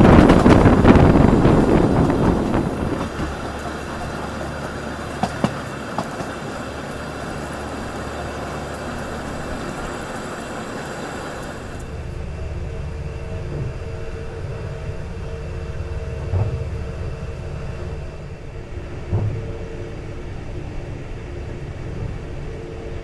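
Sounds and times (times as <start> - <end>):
rushing air: 0.0 - 14.1
steady hum inside coach: 0.0 - 23.0
train wheels rumbling on rail: 0.0 - 23.0.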